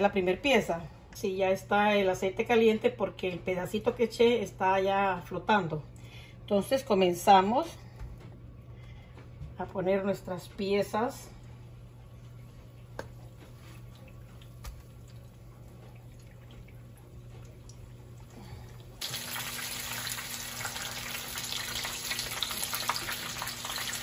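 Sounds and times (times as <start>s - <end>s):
fish frying in hot oil: 19.0s - 24.0s.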